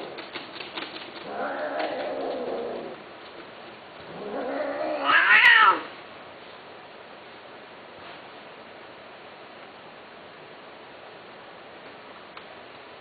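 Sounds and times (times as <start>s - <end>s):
cat meowing: 4.1s - 5.9s.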